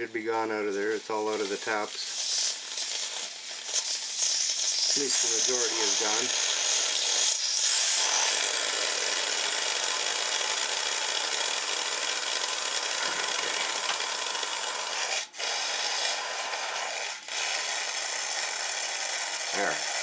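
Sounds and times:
water and air hissing out: 0.7s - 8.3s.

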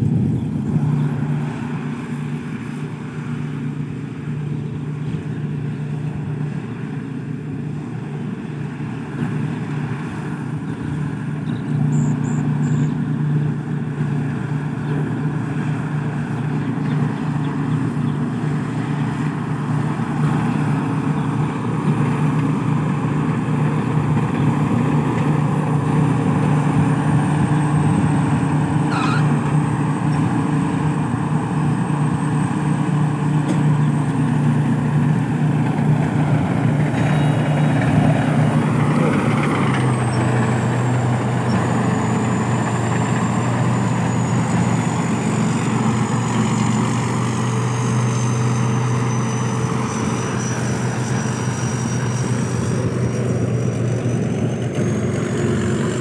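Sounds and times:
diesel engine running under load: 0.0s - 56.0s
thin high whine: 28.9s - 29.4s.

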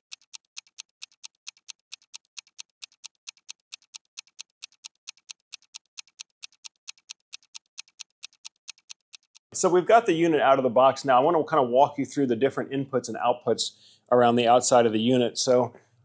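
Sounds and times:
clock-like ticking: 0.0s - 9.6s.

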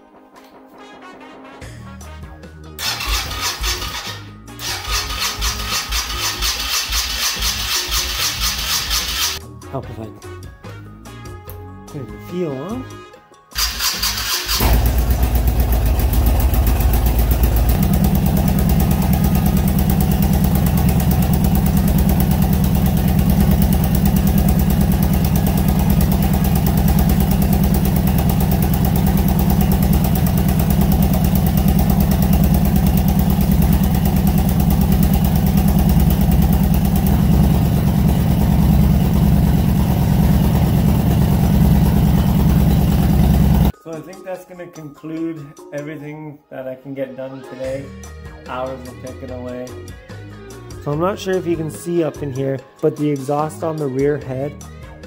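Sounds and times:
motorcycle engine idling: 13.8s - 43.7s.

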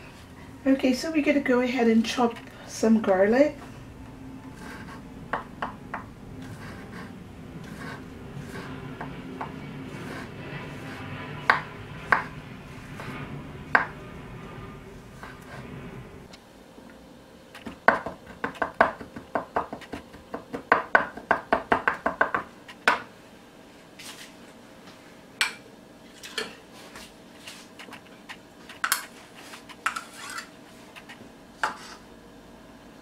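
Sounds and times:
blade scraping board: 4.4s - 5.8s, 6.4s - 16.3s, 27.5s - 32.0s
knife chopping on wooden board: 17.6s - 23.1s.

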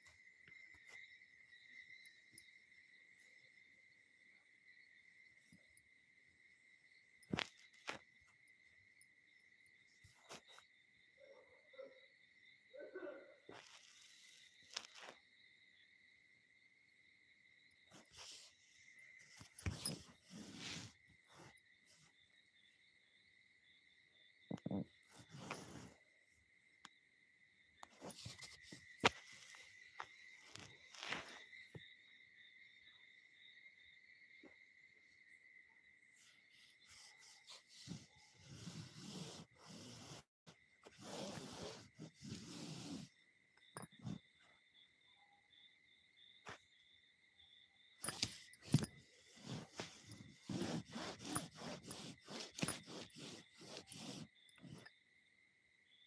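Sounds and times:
faint high-pitched chirring tone: 0.0s - 39.3s, 42.0s - 56.0s
fabric rustle: 17.9s - 22.1s, 36.2s - 43.1s, 48.0s - 54.9s.

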